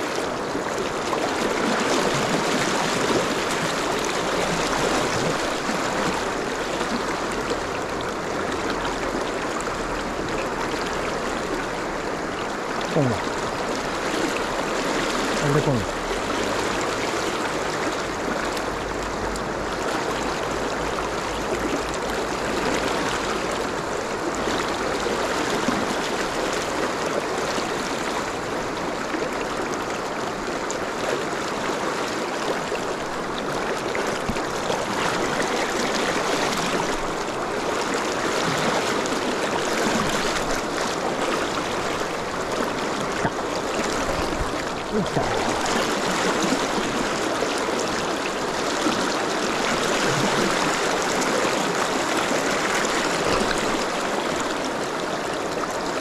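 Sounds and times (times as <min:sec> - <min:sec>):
river rushing over riffle: 0:00.0 - 0:29.0, 0:29.6 - 0:56.0.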